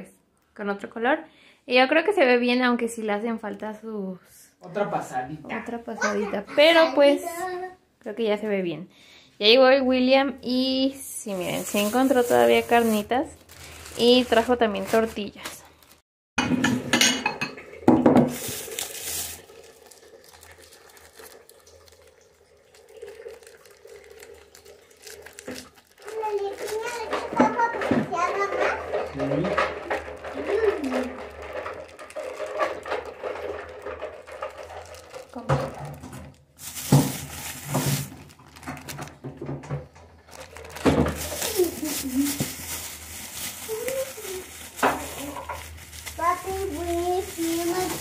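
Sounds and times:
plastic bags crinkling: 0:10.5 - 0:16.0, 0:18.0 - 0:39.5, 0:40.1 - 0:48.0
kitchenware clattering: 0:16.4 - 0:19.4, 0:26.8 - 0:40.0, 0:40.7 - 0:45.8.

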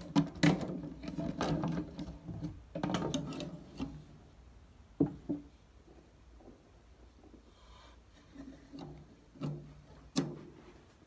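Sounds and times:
metal mesh lid rattling and scraping: 0:00.0 - 0:04.1.

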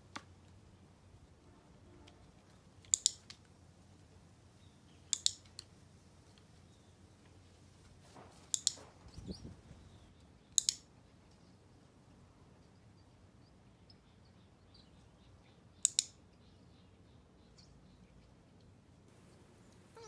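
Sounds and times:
clicker clicking: 0:02.8 - 0:03.4, 0:05.1 - 0:05.7, 0:08.5 - 0:08.8, 0:10.5 - 0:10.9, 0:15.8 - 0:16.2.

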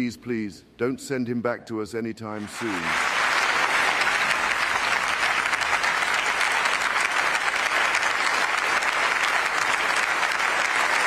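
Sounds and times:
large audience applauding: 0:02.4 - 0:11.0.

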